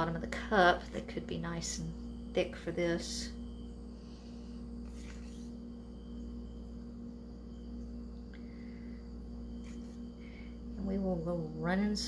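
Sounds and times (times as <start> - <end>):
faint high-pitched whine: 0.0 - 12.0
low electrical hum: 0.0 - 12.0
soft handling scrapes: 4.0 - 5.7.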